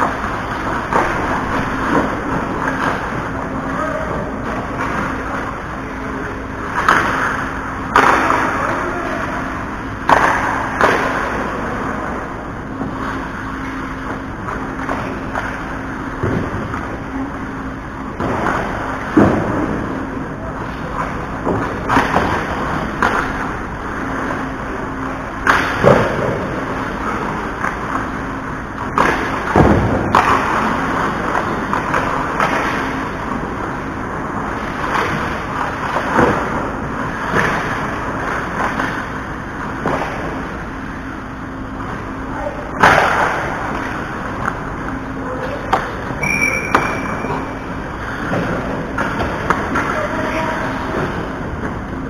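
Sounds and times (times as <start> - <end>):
skate and arena noise: 0.0 - 52.0
sticks and puck knocking boards: 10.0 - 11.4
brief high tone: 46.2 - 47.5.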